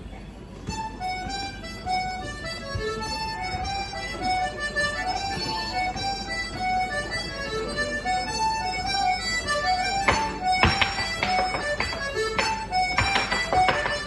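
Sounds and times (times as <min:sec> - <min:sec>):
accordions playing a dance tune: 0:00.5 - 0:14.0.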